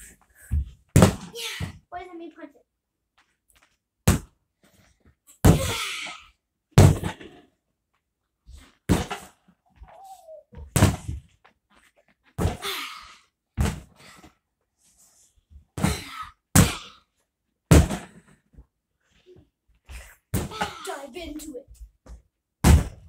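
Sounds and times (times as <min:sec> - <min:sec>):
punching bag thumps: 0:17.7 - 0:18.1, 0:22.6 - 0:23.0.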